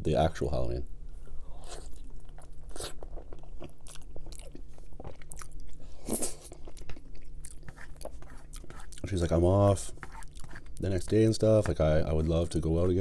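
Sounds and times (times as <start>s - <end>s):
close chewing with mouth clicks: 1.6s - 9.1s, 9.9s - 10.8s.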